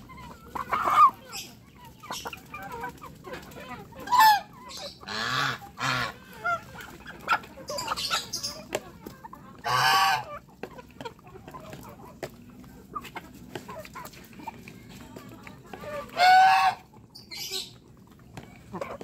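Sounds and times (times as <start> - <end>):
goose honking: 4.0 - 6.2, 9.6 - 10.4, 15.9 - 16.9.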